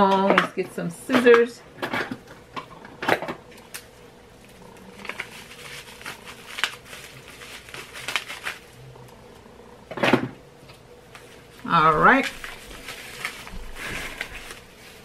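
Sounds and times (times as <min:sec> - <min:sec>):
plastic wrapping crinkling: 0:03.5 - 0:09.1, 0:11.0 - 0:15.0.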